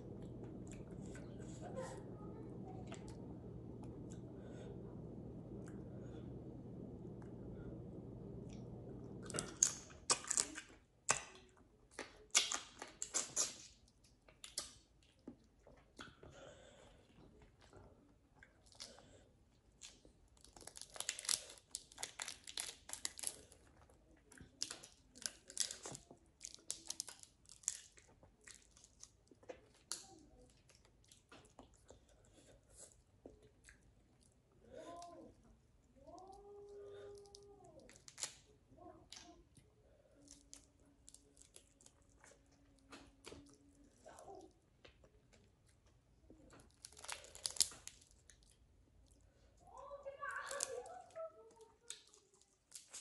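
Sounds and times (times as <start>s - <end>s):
person crunching food: 19.8s - 30.0s, 37.0s - 38.5s, 46.4s - 49.2s.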